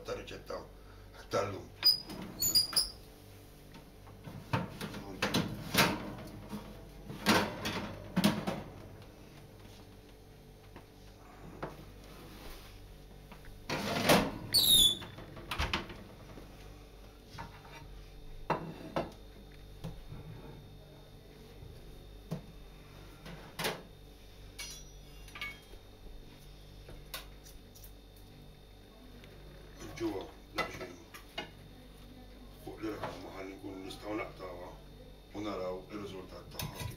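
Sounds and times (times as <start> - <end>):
metal tray clattering and scraping: 13.7 - 14.4.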